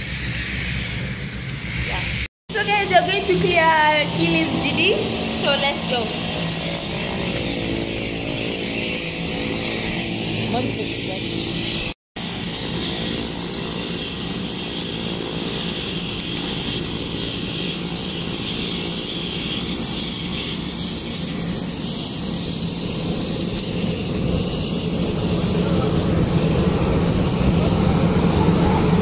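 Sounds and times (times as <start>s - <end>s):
aircraft engine humming and whining: 0.0s - 29.0s.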